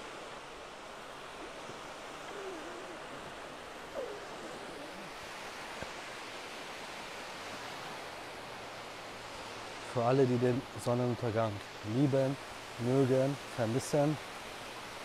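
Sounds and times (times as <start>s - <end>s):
small waves breaking on beach: 0.0s - 15.0s.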